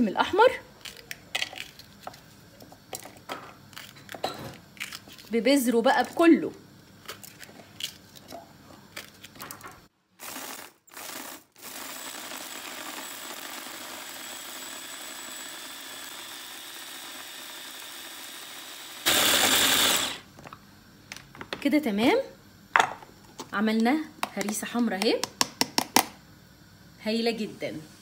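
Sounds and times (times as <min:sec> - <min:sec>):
electric mini chopper motor: 0:10.2 - 0:20.2.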